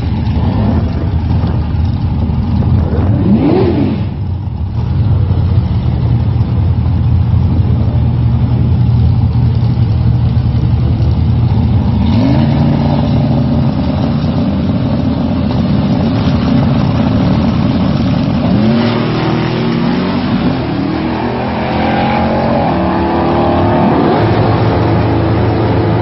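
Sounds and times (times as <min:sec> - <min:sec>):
drag car engine accelerating: 0:00.0 - 0:26.0.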